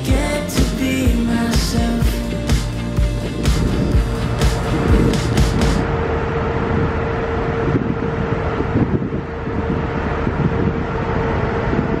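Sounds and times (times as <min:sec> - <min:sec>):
steady hum: 0:00.0 - 0:12.0
wind buffeting microphone: 0:03.0 - 0:12.0
low rumble of ship: 0:03.2 - 0:12.0.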